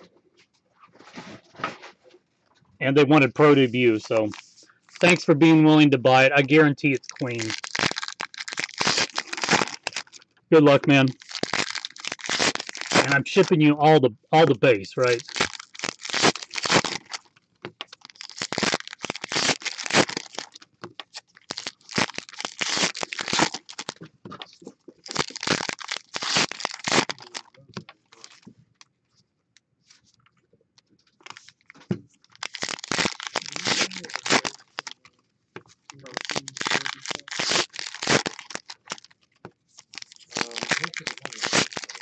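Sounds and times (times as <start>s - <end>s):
wrapper tearing and crinkling: 3.4s - 5.3s, 6.1s - 13.6s, 15.0s - 24.0s, 25.0s - 28.4s, 31.2s - 39.2s, 39.8s - 42.0s.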